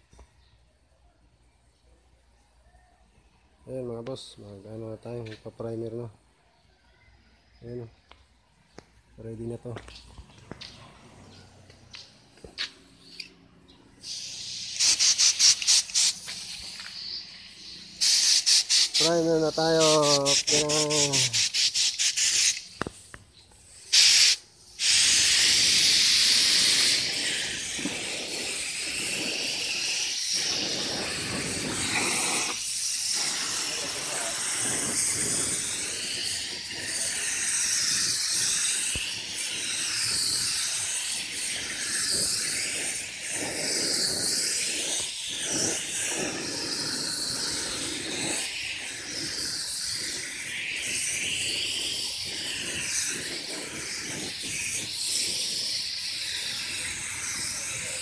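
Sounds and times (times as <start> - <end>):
spray gun hissing: 14.0 - 58.0.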